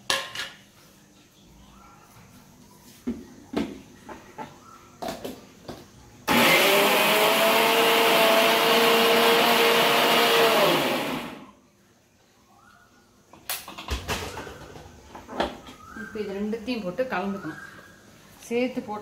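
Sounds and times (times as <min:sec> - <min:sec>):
mixer grinder motor running: 0:06.3 - 0:11.4.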